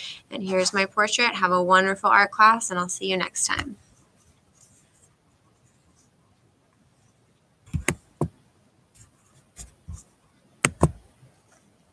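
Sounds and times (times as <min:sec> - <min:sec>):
laptop trackpad clicks: 0:07.7 - 0:08.4, 0:10.6 - 0:11.0.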